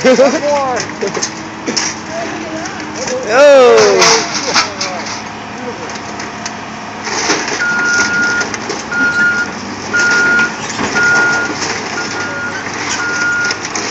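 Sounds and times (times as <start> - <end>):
excavator working: 0.0 - 13.9
scrap metal clattering: 3.0 - 5.4, 7.0 - 13.9
backup alarm beeping: 7.6 - 13.6.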